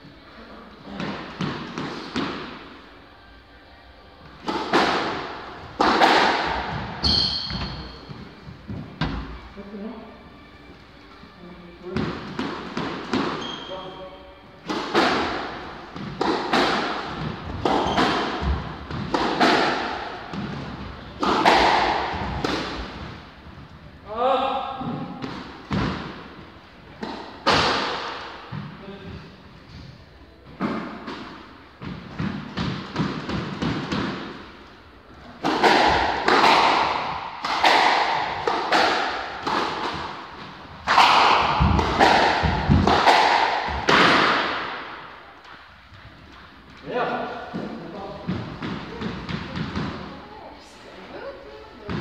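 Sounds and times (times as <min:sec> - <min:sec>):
squash ball hits echoing: 0:00.9 - 0:02.8, 0:04.2 - 0:09.4, 0:11.8 - 0:13.8, 0:14.6 - 0:23.3, 0:24.7 - 0:28.8, 0:30.6 - 0:34.7, 0:35.3 - 0:45.6, 0:47.2 - 0:50.4, 0:51.8 - 0:52.0.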